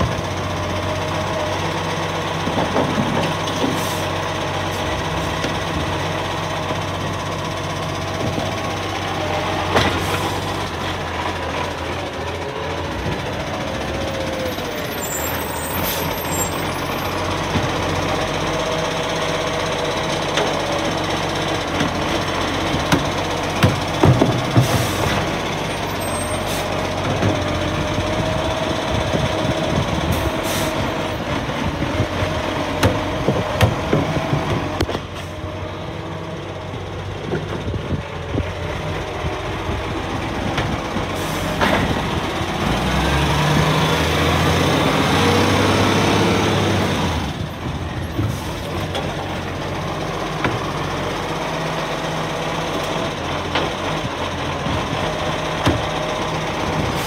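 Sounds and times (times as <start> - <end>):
garbage truck engine: 0.0 - 57.0
air brakes hissing: 3.7 - 4.2, 24.6 - 25.2, 26.0 - 26.8, 30.1 - 31.0, 41.2 - 41.6.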